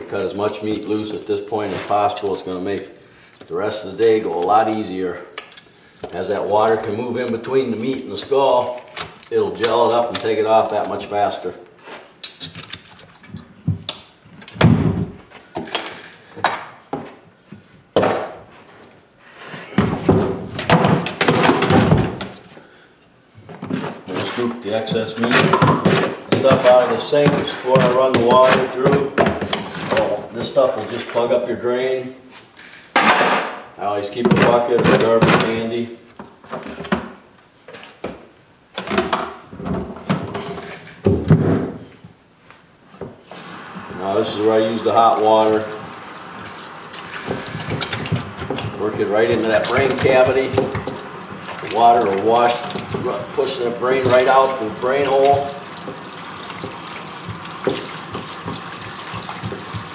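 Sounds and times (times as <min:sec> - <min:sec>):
plastic scoop scraping sink: 0:23.6 - 0:31.3, 0:43.3 - 0:59.9.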